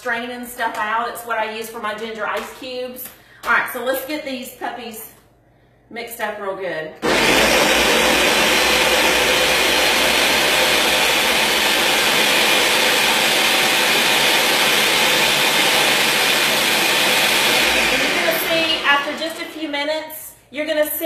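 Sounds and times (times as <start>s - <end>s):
blender running at high speed: 7.0s - 19.8s.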